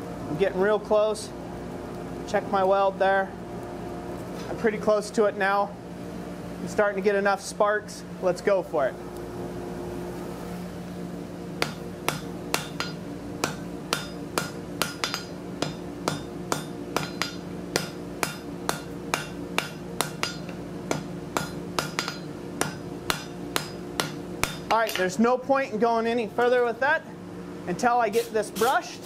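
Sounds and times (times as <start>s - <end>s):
steady hum: 0.0s - 29.0s
hammer striking steel on anvil: 11.6s - 25.2s.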